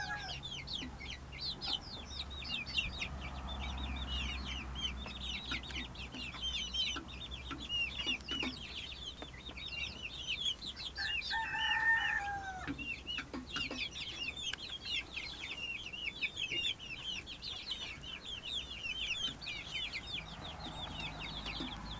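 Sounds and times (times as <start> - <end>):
long low chick call: 0.0 - 0.6, 11.0 - 12.8
chicks peeping: 0.0 - 21.9.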